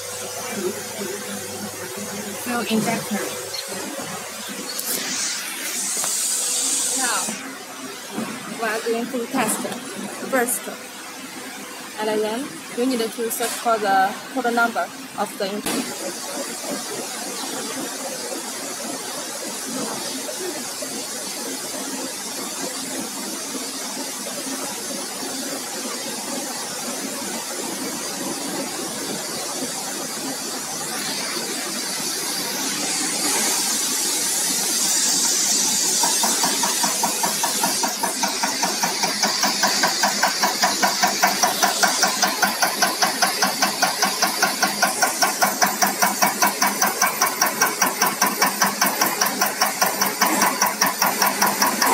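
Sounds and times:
machine hum: 0.0 - 12.2
rapid even clicking: 36.0 - 51.9.

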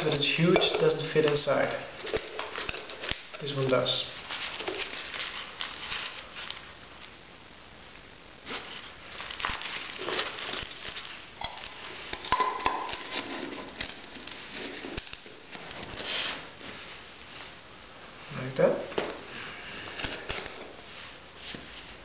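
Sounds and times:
metal pots clinking and scraping: 0.0 - 1.4, 11.4 - 15.1
rustling of small items: 0.0 - 7.2, 8.4 - 22.0.

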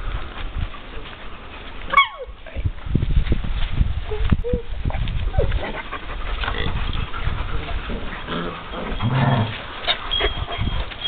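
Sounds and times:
puppies growling and whimpering: 5.3 - 11.0.

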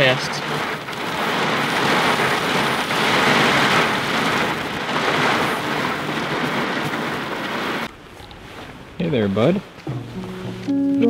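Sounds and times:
heavy rain on vehicle roof: 0.0 - 10.7.

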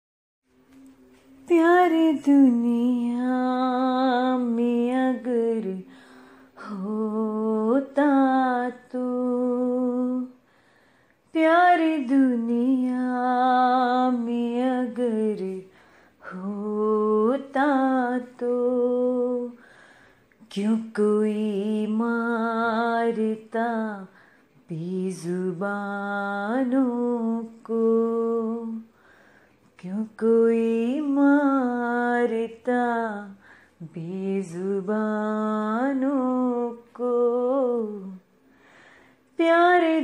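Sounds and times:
woman singing unaccompanied: 1.1 - 10.4, 11.3 - 19.7, 20.4 - 29.0, 29.7 - 38.3, 39.3 - 40.0
breaths: 5.8 - 6.6, 10.4 - 11.3, 15.6 - 16.3, 19.6 - 20.4, 24.1 - 24.6, 28.9 - 29.8, 33.4 - 33.8, 38.3 - 39.4.

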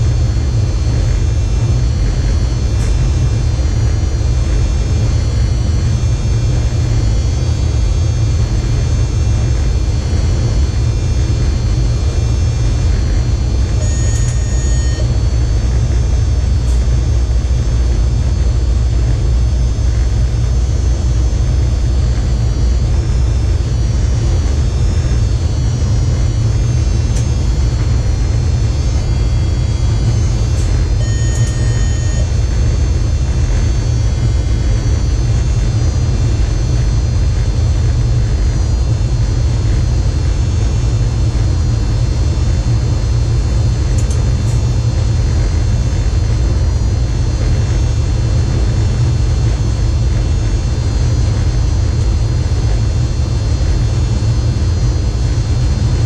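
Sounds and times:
electric train rumbling: 0.0 - 56.0
steady thin whine: 0.0 - 56.0
short electronic beep: 13.8 - 15.4, 28.8 - 32.4.

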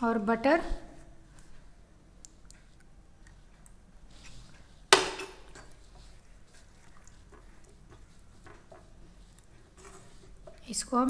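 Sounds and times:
utensil clanking on cookware: 5.0 - 5.8.

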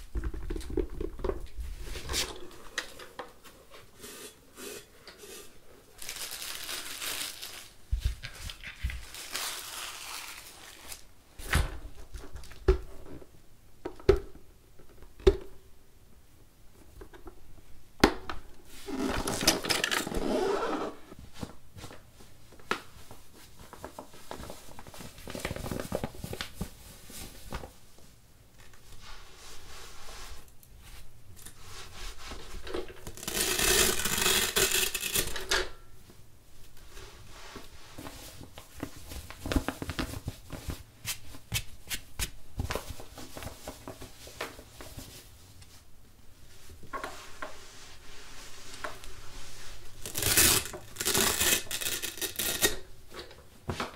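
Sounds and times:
plastic parts scraping and rustling: 18.8 - 20.3, 50.0 - 53.9.

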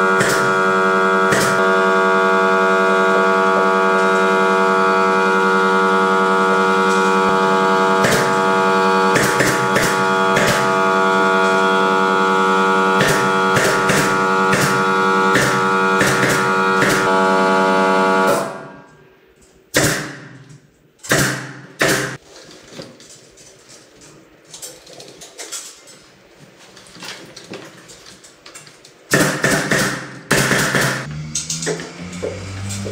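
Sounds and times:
loud steady droning tone: 0.0 - 19.2, 29.2 - 32.9
nail gun shots: 0.2 - 0.5, 1.3 - 1.6, 9.1 - 10.7, 13.0 - 17.2, 19.7 - 20.4, 21.0 - 22.2, 29.1 - 31.8.

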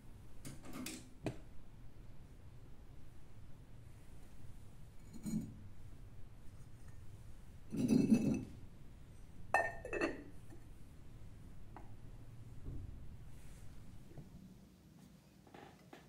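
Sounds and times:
ceramic dish and lid clinking: 7.7 - 8.5, 9.5 - 10.4.

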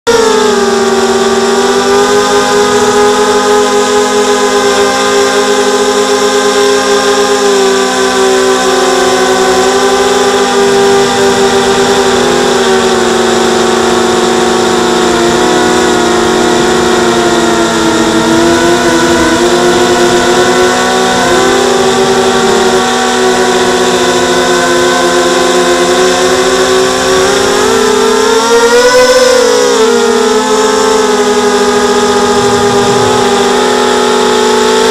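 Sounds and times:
quadcopter motors whining: 0.1 - 34.9.

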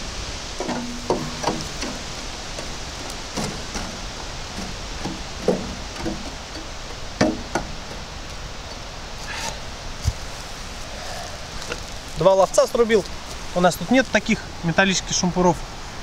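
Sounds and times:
metal poker knocking coals: 0.6 - 8.8.

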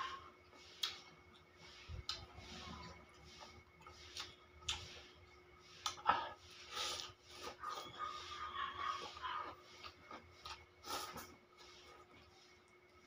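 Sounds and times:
chewing: 0.8 - 5.2, 5.8 - 13.0
slurping: 5.8 - 12.7.

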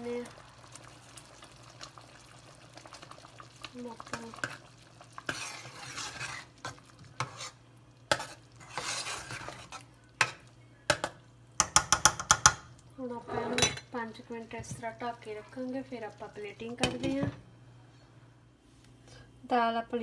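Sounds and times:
liquid swishing: 4.9 - 9.9.

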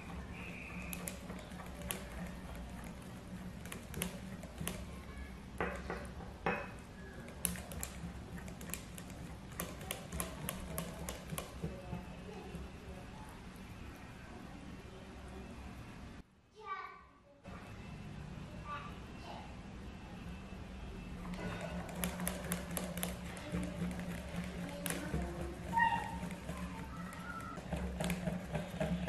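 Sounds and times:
whisk scraping bowl: 0.0 - 5.0, 7.1 - 13.0, 21.2 - 29.0
whisk clicking against glass bowl: 6.5 - 12.7, 21.4 - 29.0.

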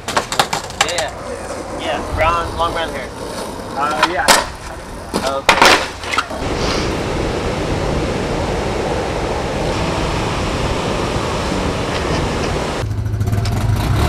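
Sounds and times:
ocean waves breaking: 5.8 - 12.8.

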